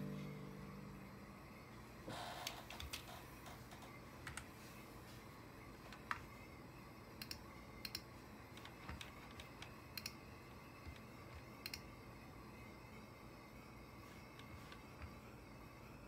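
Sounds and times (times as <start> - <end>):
low background hiss: 0.0 - 2.1.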